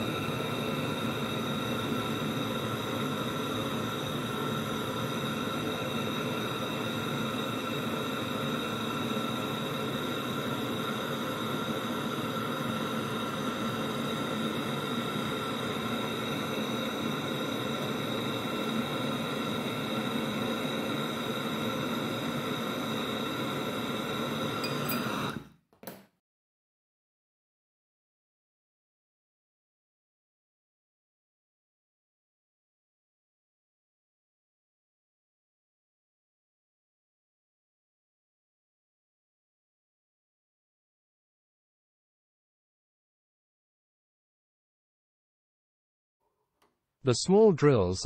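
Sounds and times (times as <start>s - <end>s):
torch flame hissing: 0.0s - 25.5s.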